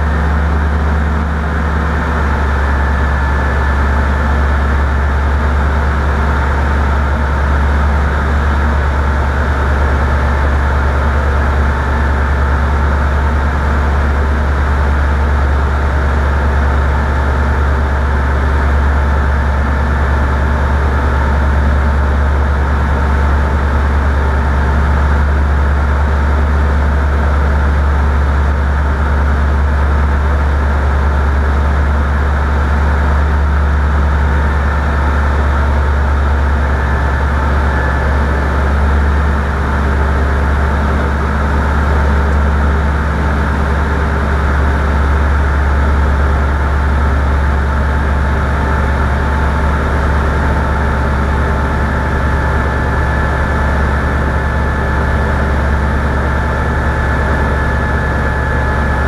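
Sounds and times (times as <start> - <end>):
propeller aircraft engine drone: 0.0 - 59.0.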